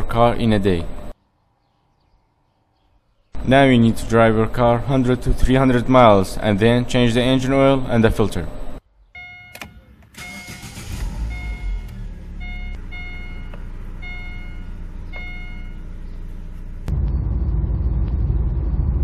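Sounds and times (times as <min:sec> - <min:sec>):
car driving road noise: 0:03.4 - 0:19.0
car engine starting and idling: 0:03.4 - 0:19.0
dashboard warning chime beeping: 0:09.2 - 0:16.1.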